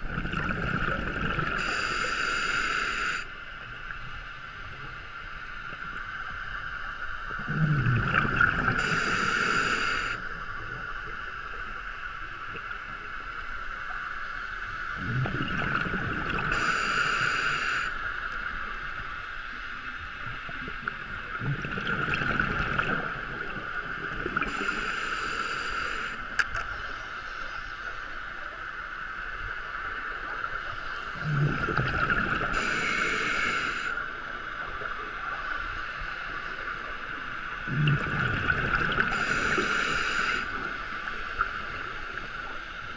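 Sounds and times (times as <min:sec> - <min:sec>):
exhaled bubbles gurgling: 0:00.0 - 0:03.2, 0:07.2 - 0:11.7, 0:14.9 - 0:18.4, 0:20.2 - 0:26.4, 0:29.5 - 0:42.9
steady high hum: 0:00.0 - 0:13.9
regulator breathing hiss: 0:01.5 - 0:03.4, 0:08.8 - 0:10.3, 0:16.5 - 0:18.1, 0:24.5 - 0:27.9, 0:32.5 - 0:34.3, 0:39.1 - 0:41.2.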